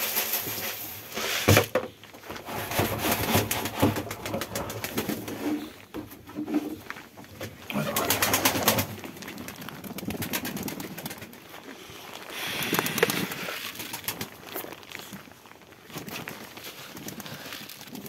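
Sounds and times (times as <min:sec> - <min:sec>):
wings flapping: 0:02.6 - 0:05.8, 0:07.5 - 0:11.7, 0:12.3 - 0:15.2, 0:15.9 - 0:18.0
pigeons cooing: 0:07.5 - 0:11.3.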